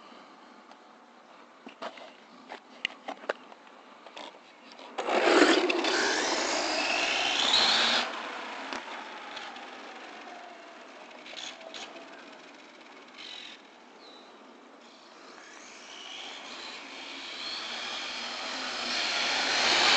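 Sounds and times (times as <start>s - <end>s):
electric motor whine: 5.0s - 13.0s, 14.8s - 19.9s
tyre noise burst: 16.4s - 19.9s.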